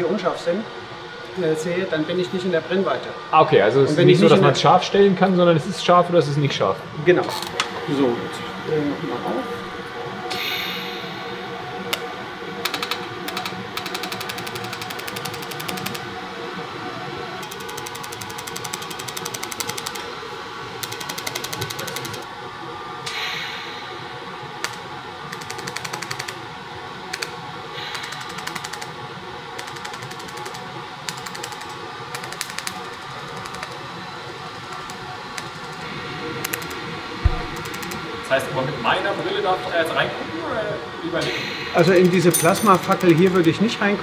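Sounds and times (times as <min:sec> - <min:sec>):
laser welder ticking: 0:11.9 - 0:16.1, 0:17.4 - 0:20.1, 0:20.7 - 0:22.3, 0:24.6 - 0:26.4, 0:27.0 - 0:33.8, 0:34.6 - 0:35.8, 0:36.4 - 0:38.0, 0:41.8 - 0:43.6.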